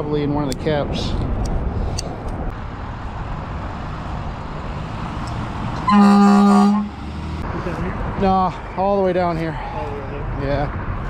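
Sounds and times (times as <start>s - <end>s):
low traffic rumble: 0.0s - 11.0s
vehicle horn blast: 5.8s - 6.9s.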